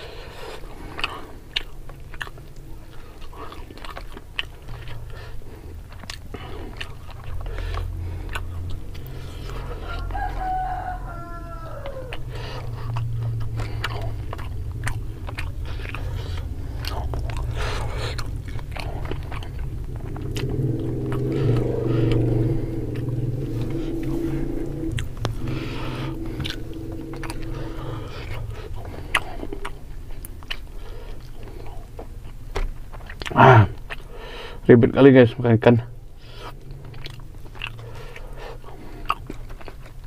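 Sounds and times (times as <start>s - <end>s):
low hum: 0.0s - 34.6s
chewing: 0.0s - 34.7s, 36.0s - 40.0s
rooster crowing: 9.3s - 13.6s, 20.2s - 29.6s.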